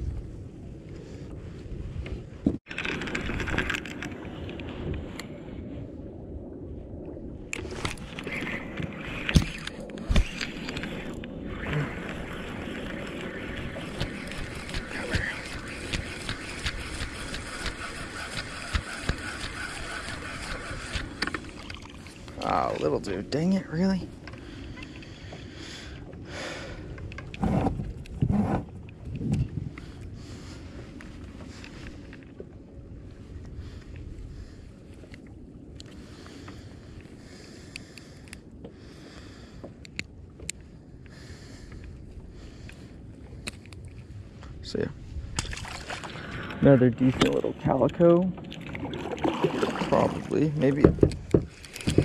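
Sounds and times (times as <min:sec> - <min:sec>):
low wind: 0:00.0 - 0:52.0
water noise: 0:00.0 - 0:52.0
spinning reel cranking: 0:13.8 - 0:21.5
dull knocks and rustles: 0:50.8 - 0:52.0.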